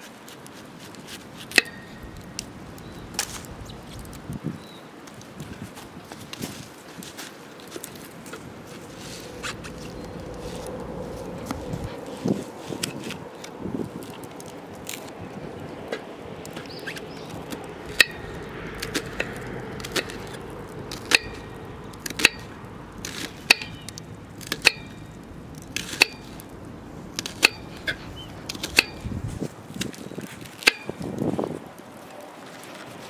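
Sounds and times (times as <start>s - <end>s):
handling rustle: 0.0s - 33.0s
chopping strikes with metallic ring: 22.1s - 22.6s, 23.5s - 23.9s, 24.6s - 25.0s.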